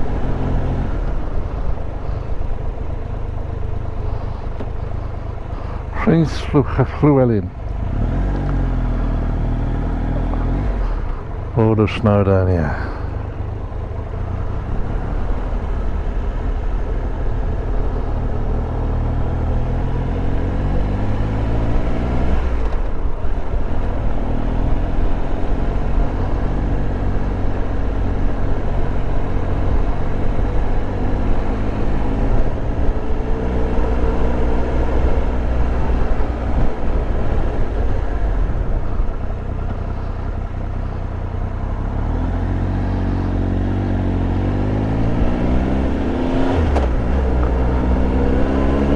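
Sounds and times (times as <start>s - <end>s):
wind and road noise: 0.0s - 48.9s
motorcycle engine revving: 7.6s - 11.4s, 14.1s - 48.9s.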